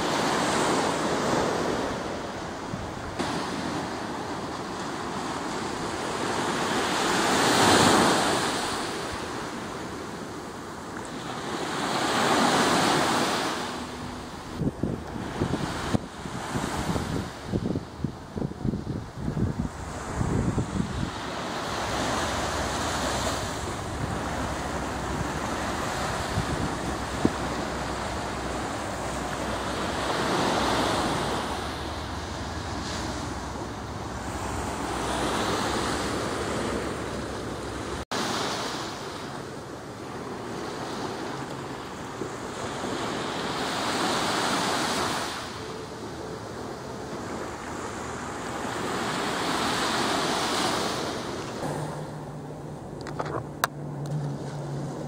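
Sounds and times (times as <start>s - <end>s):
sea surf washing onto beach: 0.0s - 55.0s
wind rumbling on microphone: 0.0s - 55.0s.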